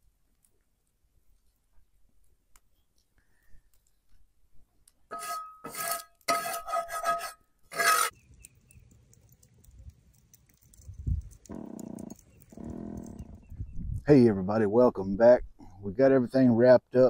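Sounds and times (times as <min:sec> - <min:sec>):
metal spatula scraping skillet: 0:05.1 - 0:08.2.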